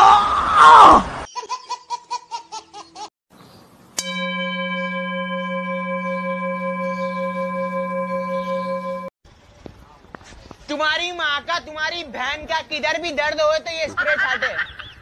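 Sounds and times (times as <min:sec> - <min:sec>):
steady held tone: 0:04.0 - 0:09.1
short pitched chirps: 0:04.3 - 0:09.1.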